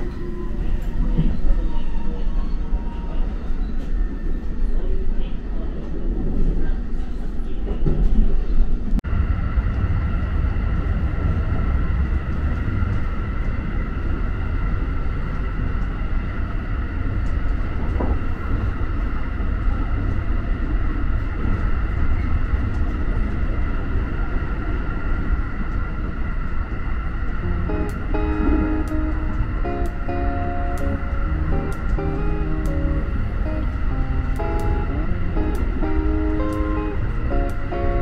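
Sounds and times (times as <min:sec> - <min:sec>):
train low rumble: 0:00.0 - 0:38.0
high electric whine: 0:27.4 - 0:38.0.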